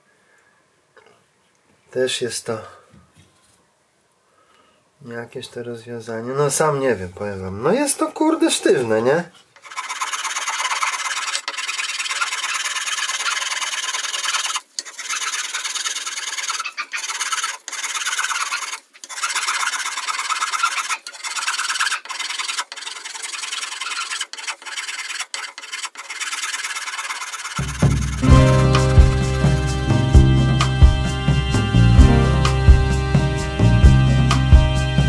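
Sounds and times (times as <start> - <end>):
file rasping on wood: 9.6 - 28.2.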